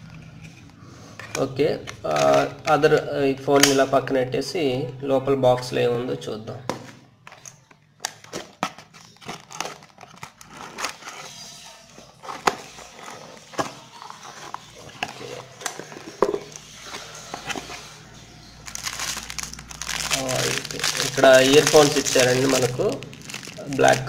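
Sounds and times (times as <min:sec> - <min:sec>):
plastic wrap crinkling: 0:07.3 - 0:24.0.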